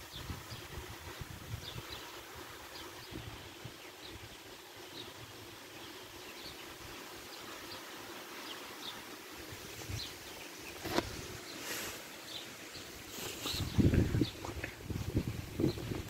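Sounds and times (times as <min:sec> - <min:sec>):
rain: 0:00.0 - 0:10.8
wind: 0:00.0 - 0:16.0.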